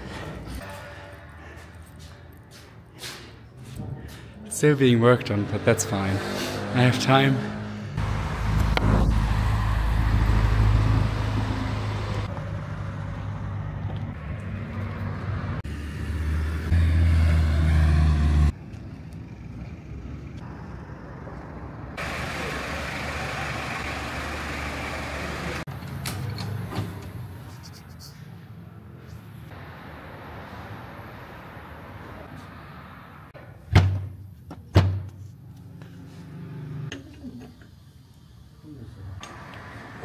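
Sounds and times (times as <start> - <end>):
street traffic noise: 0.0 - 40.0
loud low engine drone: 22.0 - 25.7.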